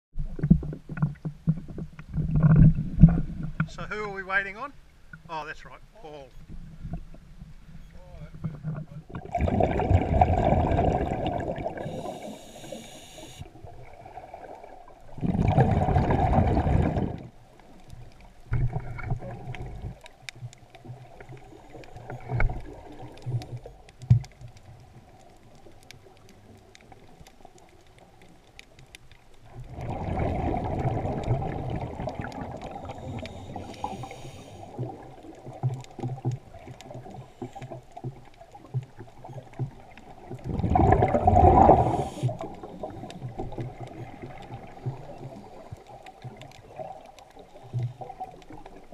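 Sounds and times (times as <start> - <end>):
faint clicks and knocks: 0.2 - 3.8, 17.2 - 29.8, 32.0 - 40.6
underwater bubbling exhalations: 8.5 - 17.4, 18.4 - 20.2, 29.4 - 48.9
regulator inhale hiss: 11.8 - 13.5, 32.7 - 34.9, 41.6 - 43.2.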